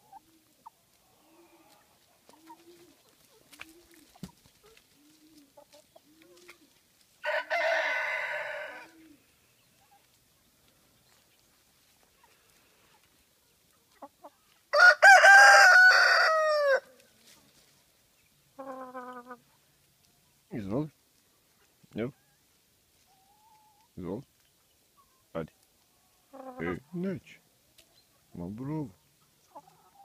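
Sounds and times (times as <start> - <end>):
soft low hen clucks: 0.0 - 6.8, 18.2 - 20.4, 21.4 - 30.0
rooster crowing: 7.2 - 9.0, 14.7 - 16.9.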